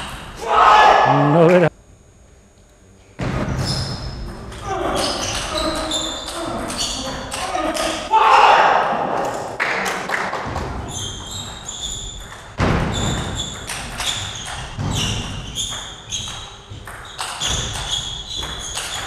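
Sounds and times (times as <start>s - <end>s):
shoes squeaking on floor: 3.6s - 7.9s, 10.8s - 19.0s.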